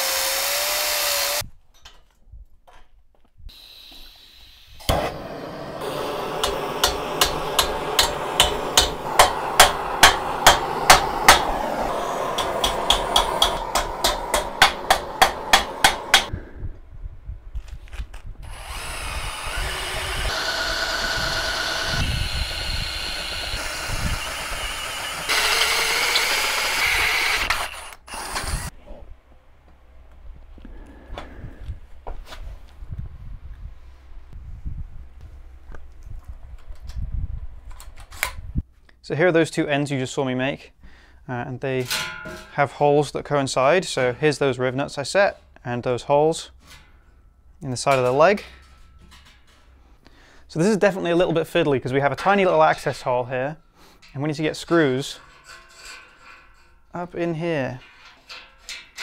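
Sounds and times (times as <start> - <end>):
power drill boring into steel: 0.0 - 1.4, 3.5 - 16.3, 18.4 - 28.7
steady noise: 5.0 - 16.3
sharp metal strikes: 6.3 - 16.3.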